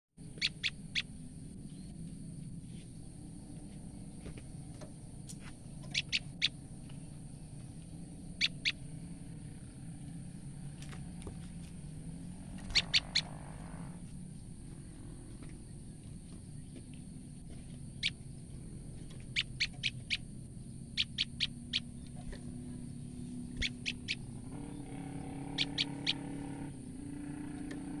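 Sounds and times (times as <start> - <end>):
bird alarm calls: 0.2 - 1.2, 5.8 - 6.6, 8.2 - 9.0, 12.5 - 13.8, 17.8 - 18.3, 19.1 - 22.2, 23.4 - 26.5
steady low hum: 0.2 - 28.0.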